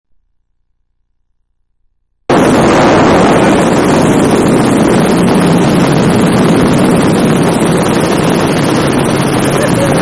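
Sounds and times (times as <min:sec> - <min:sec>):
helicopter engine and rotor drone: 0:02.3 - 0:10.0
wind on microphone: 0:02.3 - 0:10.0.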